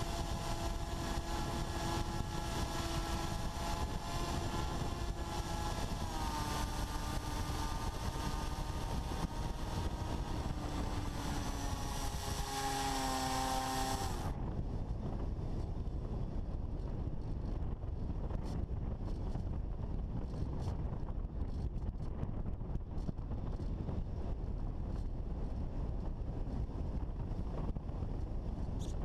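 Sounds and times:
drone motor whining: 0.0s - 14.4s
wind rush: 0.0s - 29.0s.

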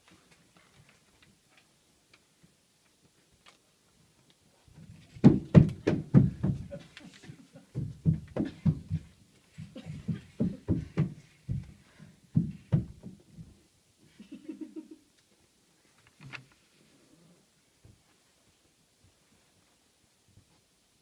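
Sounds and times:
heavy footsteps running on stage: 5.2s - 6.8s, 7.8s - 13.2s.

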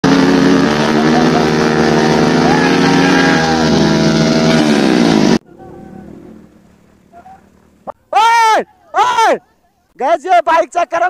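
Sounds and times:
motorcycle engine revving high: 0.0s - 5.4s.

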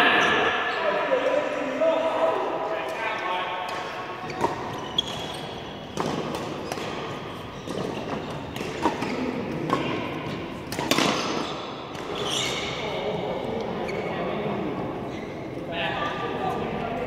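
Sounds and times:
badminton racket hitting shuttlecock: 3.7s - 12.2s.

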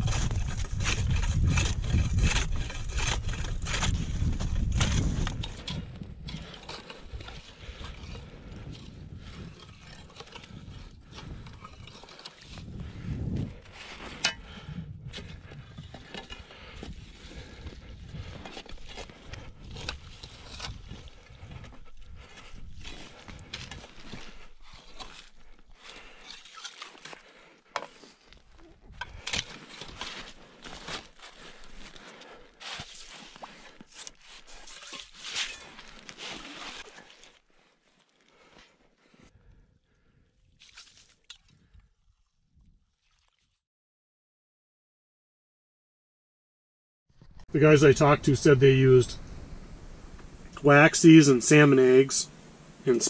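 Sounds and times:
ice saw scraping slush: 0.0s - 5.8s, 11.6s - 12.7s, 32.6s - 37.4s.

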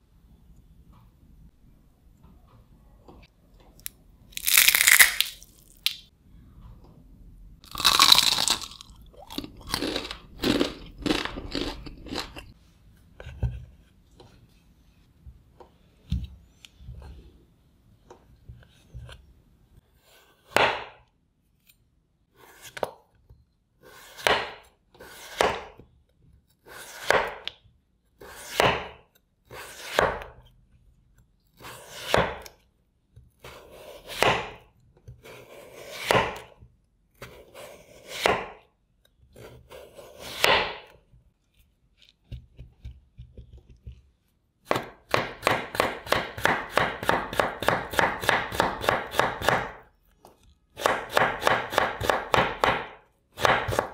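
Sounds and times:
knife slicing potato on board: 23.8s - 25.8s, 26.6s - 27.6s, 28.2s - 30.4s, 31.6s - 32.5s, 33.4s - 36.6s, 37.2s - 38.6s, 39.4s - 40.9s, 44.7s - 49.8s, 50.8s - 53.9s
quick knife chopping: 35.9s - 36.5s, 44.7s - 49.8s, 50.8s - 53.9s.

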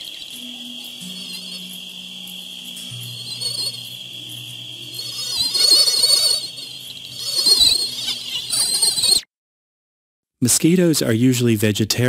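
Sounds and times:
low sustained tone: 0.0s - 8.6s
cricket-like insect drone: 0.0s - 9.3s
high-pitched mosquito whine: 0.0s - 9.3s.

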